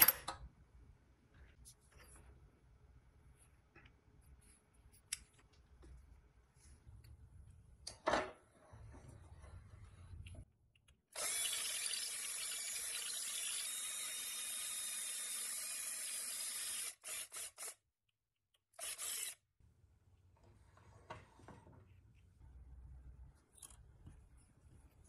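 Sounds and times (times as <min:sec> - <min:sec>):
power drill boring into steel: 0:11.2 - 0:17.8, 0:18.8 - 0:19.4.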